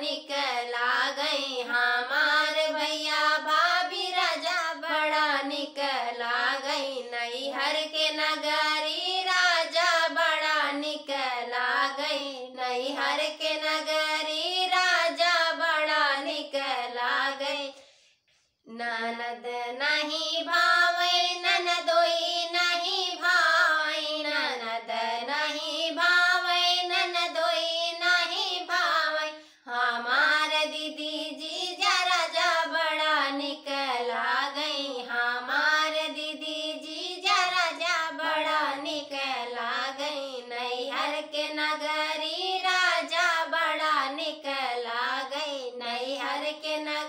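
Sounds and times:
women singing in unison: 0.0s - 18.0s, 18.7s - 47.0s.

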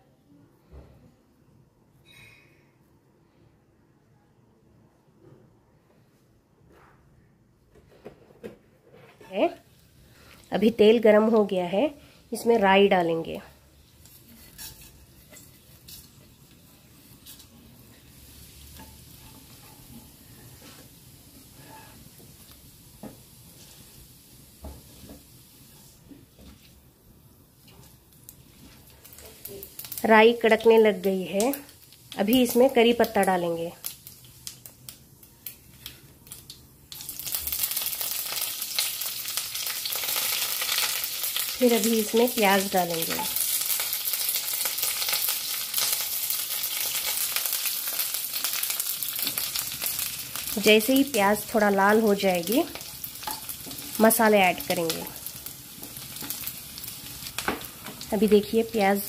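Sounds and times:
seeds sizzling in hot oil: 9.2s - 59.0s.

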